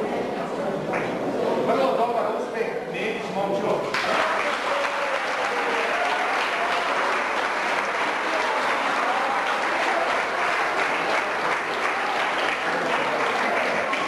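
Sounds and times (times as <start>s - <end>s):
audience applauding: 3.9s - 14.0s.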